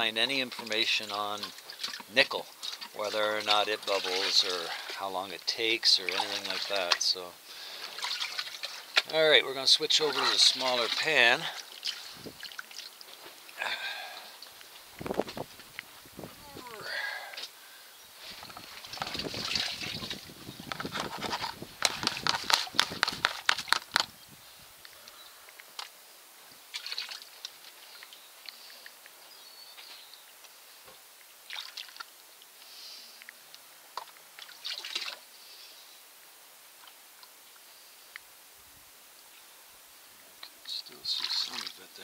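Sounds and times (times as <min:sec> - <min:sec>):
water sloshing and pouring: 0:00.3 - 0:16.4, 0:18.2 - 0:24.0, 0:26.7 - 0:28.2, 0:31.4 - 0:32.1, 0:34.0 - 0:35.3, 0:41.0 - 0:42.0.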